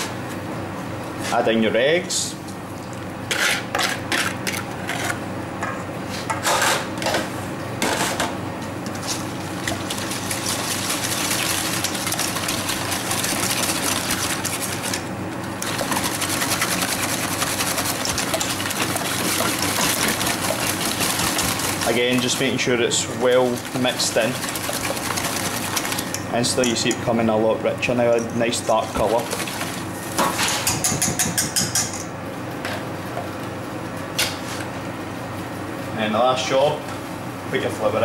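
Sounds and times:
whisk rattling in metal bowl: 0:09.6 - 0:27.2, 0:28.2 - 0:29.8, 0:30.4 - 0:32.0
whisk knocks and scrapes: 0:15.6 - 0:26.9, 0:28.7 - 0:31.9.

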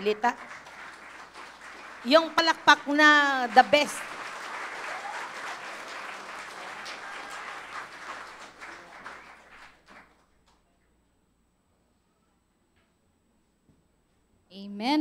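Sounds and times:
congregation applauding: 0:00.0 - 0:10.6.

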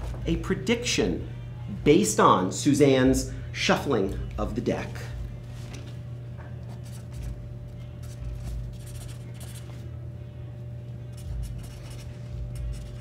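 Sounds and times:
pen scratching on paper: 0:11.1 - 0:13.0.

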